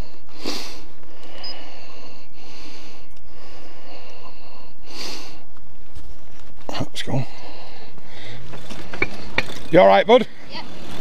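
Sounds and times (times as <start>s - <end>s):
sharp nasal exhale: 0.4s - 5.4s.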